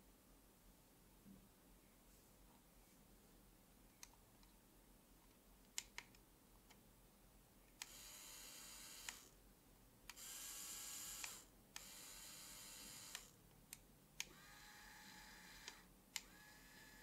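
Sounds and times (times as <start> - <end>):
small motors whirring: 7.8 - 9.3, 10.2 - 13.3, 14.3 - 17.0.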